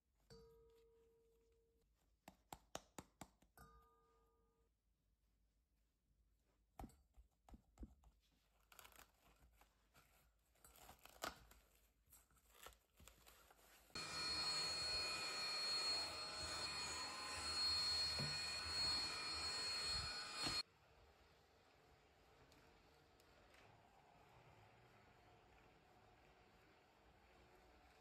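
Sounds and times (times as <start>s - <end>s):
stick vacuum cleaner running: 14.0s - 20.6s.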